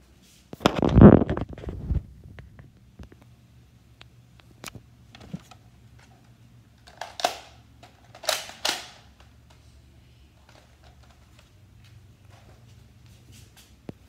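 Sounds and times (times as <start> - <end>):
plastic toy blaster clacks: 6.8 - 9.1.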